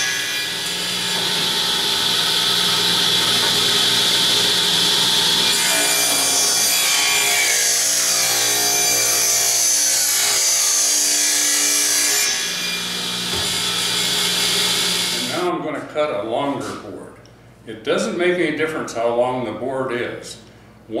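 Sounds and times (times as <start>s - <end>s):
table saw ripping board: 0.0s - 15.3s.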